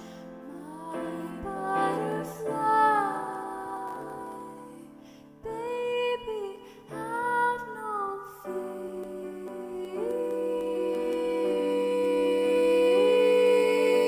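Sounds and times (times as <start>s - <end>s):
soft wordless voice singing: 0.0s - 14.0s
sustained musical backing: 8.4s - 14.0s.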